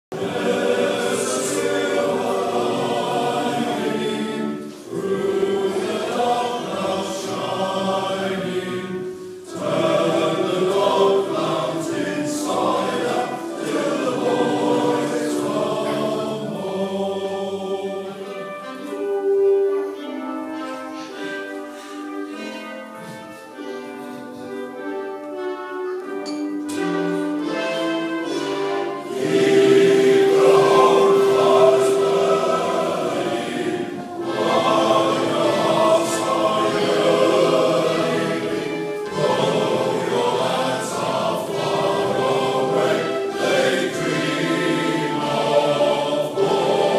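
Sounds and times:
male voice choir singing: 0:00.1 - 0:18.3, 0:29.0 - 0:46.9.

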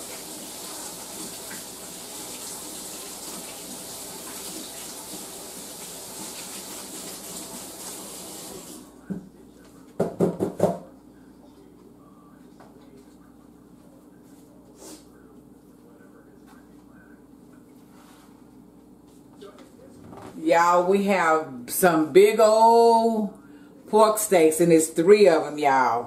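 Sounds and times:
kitchen tap running: 0:00.0 - 0:08.9
knocks: 0:10.0 - 0:10.9.

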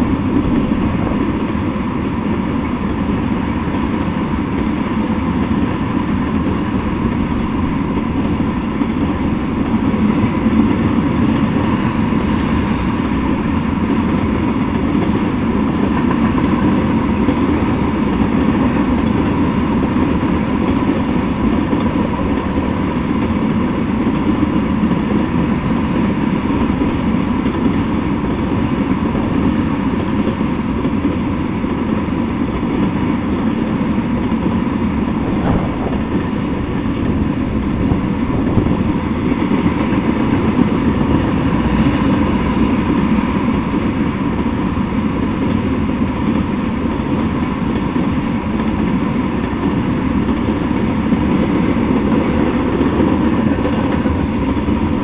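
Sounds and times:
freight train wheels rolling: 0:00.0 - 0:55.0.

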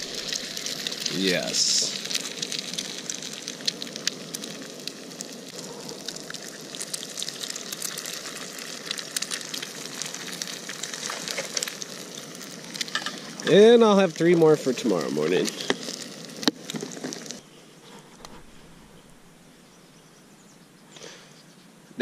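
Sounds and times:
food sizzling in frying pan: 0:00.0 - 0:17.4.

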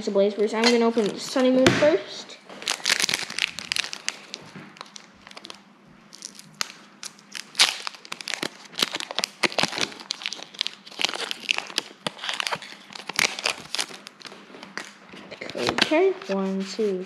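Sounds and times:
foil wrapper crinkling and tearing: 0:02.5 - 0:16.0.

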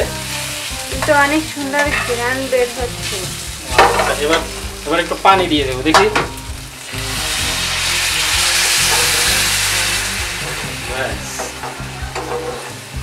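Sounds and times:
loud oil sizzle: 0:00.0 - 0:13.0.

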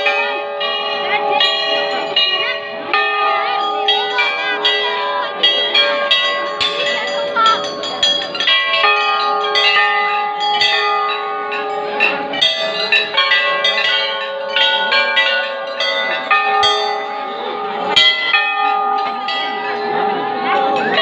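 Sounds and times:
brass bells ringing: 0:00.0 - 0:21.0.

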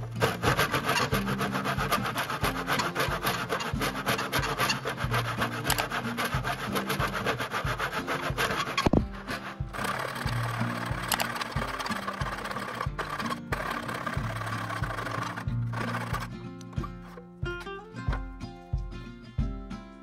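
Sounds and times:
hand saw rasping through wood: 0:00.0 - 0:17.2
knock: 0:03.0 - 0:09.8.

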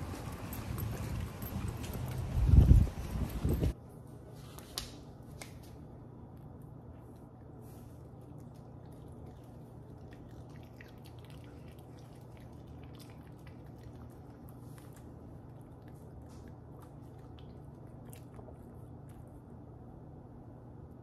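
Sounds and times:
dog chewing: 0:08.1 - 0:19.5.

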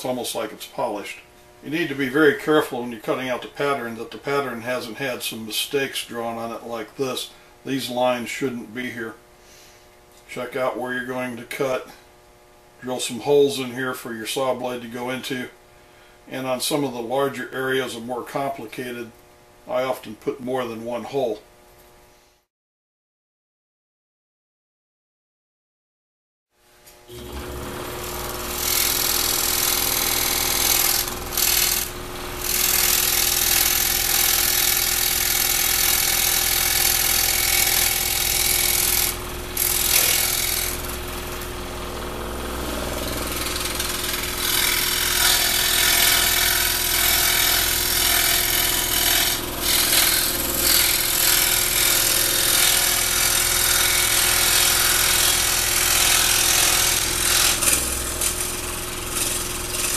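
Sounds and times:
scroll saw cutting wood: 0:27.1 - 0:59.9.

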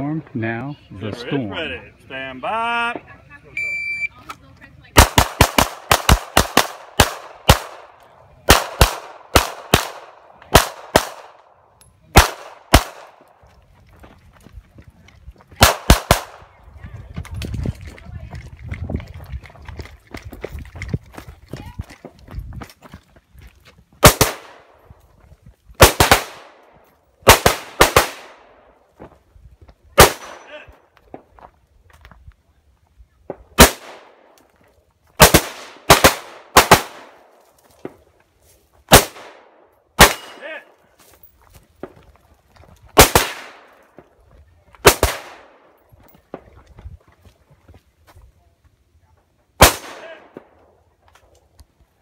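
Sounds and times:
gunshots with echo: 0:05.0 - 0:11.6, 0:12.2 - 0:13.2, 0:30.0 - 0:30.6, 0:38.9 - 0:40.7, 0:49.6 - 0:50.5
handgun shots: 0:40.0 - 0:40.4.

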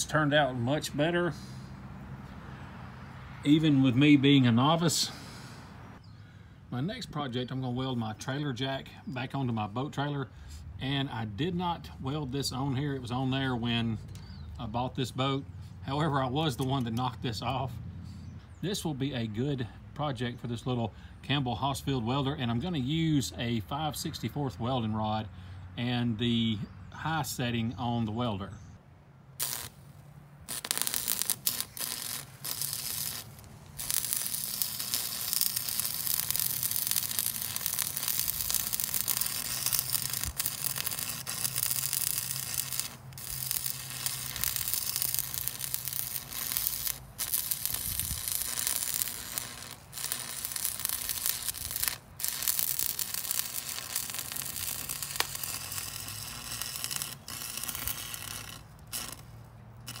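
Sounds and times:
welding arc crackling and sizzling: 0:29.4 - 1:00.0.

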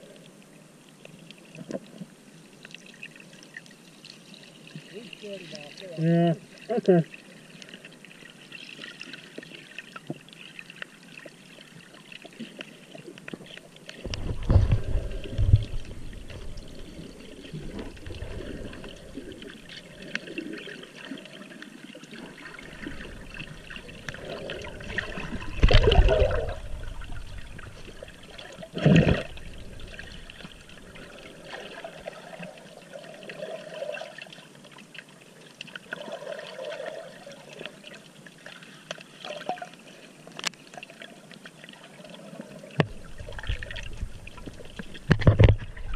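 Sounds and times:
underwater wash and gurgle: 0:00.0 - 0:45.9
water sloshing surges: 0:04.4 - 0:40.3.

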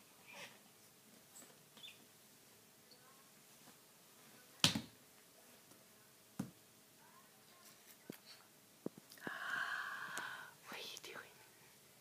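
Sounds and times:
breathy whisper: 0:09.2 - 0:11.6.

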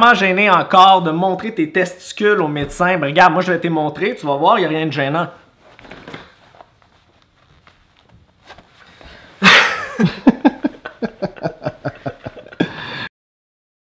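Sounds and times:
clothes rustling: 0:05.4 - 0:12.6
bursts of laughter: 0:09.4 - 0:12.8.

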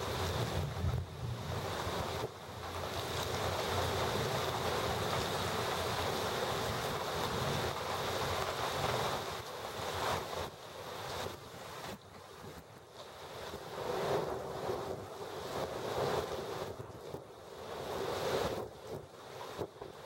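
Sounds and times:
heavy rain: 0:00.0 - 0:12.0.

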